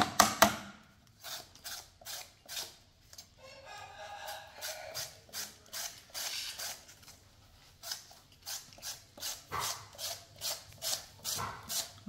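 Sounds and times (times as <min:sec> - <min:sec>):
vegetable peeler scraping: 0:01.0 - 0:03.3, 0:04.2 - 0:12.0.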